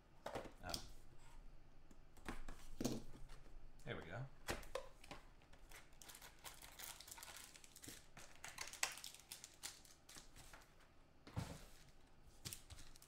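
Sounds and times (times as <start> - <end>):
packaging crinkling and rustling: 5.4 - 10.7, 12.4 - 13.0.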